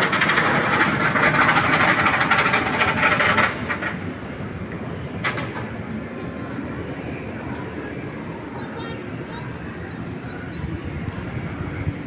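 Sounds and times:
roller coaster train rushing roar: 0.0s - 12.0s.

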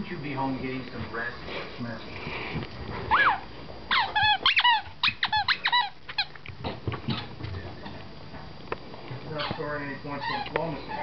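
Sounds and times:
dog whining in high squeaks: 3.1s - 6.3s, 10.2s - 11.0s.

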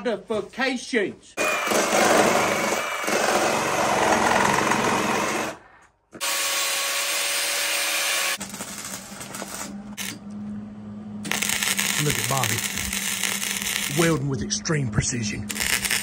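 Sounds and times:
welding crackle with low hum: 8.4s - 10.6s, 11.2s - 16.0s
reciprocating saw cutting: 11.3s - 14.3s, 15.5s - 16.0s.

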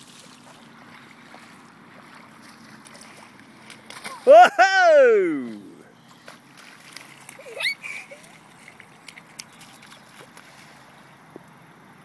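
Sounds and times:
light splashing: 0.0s - 11.1s
board skimming across water: 0.0s - 12.0s
small ticks: 8.6s - 10.5s.

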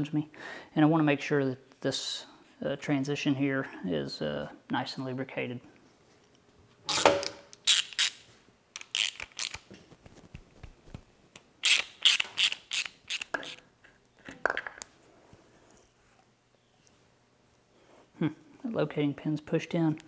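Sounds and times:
ratchet wrench clicking: 8.8s - 9.6s, 11.6s - 13.6s.

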